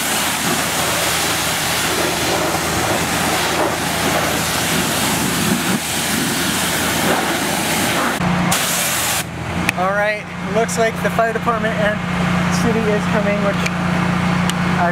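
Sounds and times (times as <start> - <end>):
pressure washer water jet spraying: 0.0 - 9.4
low hum: 0.0 - 14.8.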